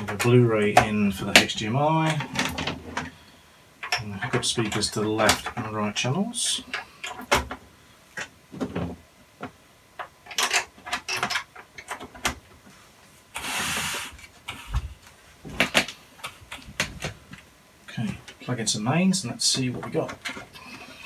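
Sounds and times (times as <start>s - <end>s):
clicks and knocks of wires: 8.2s - 12.6s, 14.2s - 18.5s.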